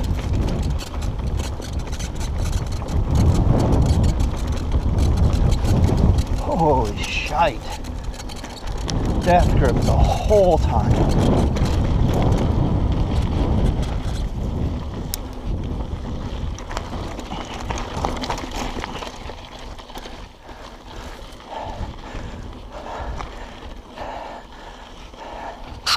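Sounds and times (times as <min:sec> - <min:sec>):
bike rattling over bumps: 0:00.0 - 0:25.9
wind and tyre rumble: 0:00.0 - 0:25.9.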